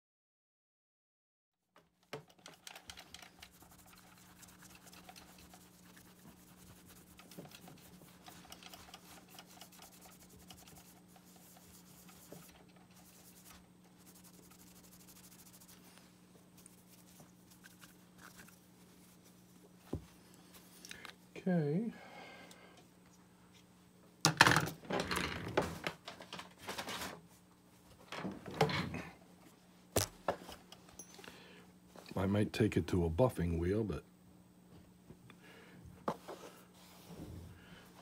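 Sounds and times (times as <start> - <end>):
steady low hum: 2.3 - 24.2
cloth rubbing on metal: 3.1 - 20.7.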